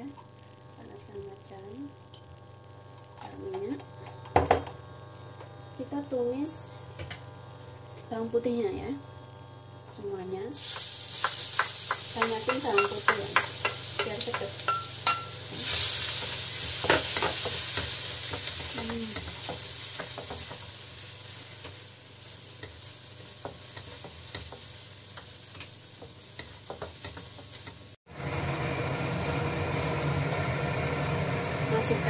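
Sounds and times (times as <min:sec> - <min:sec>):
garlic sizzling in oil: 0:10.5 - 0:32.0
spatula scraping and tapping pan: 0:10.6 - 0:15.4, 0:16.2 - 0:20.8, 0:22.5 - 0:27.9.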